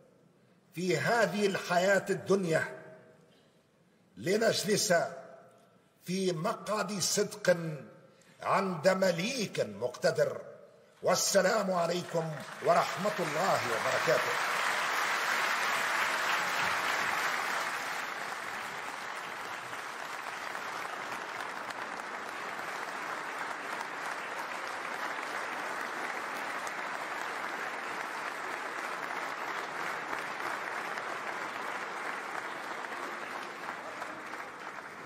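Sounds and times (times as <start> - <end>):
audience applause: 12.0 - 35.0.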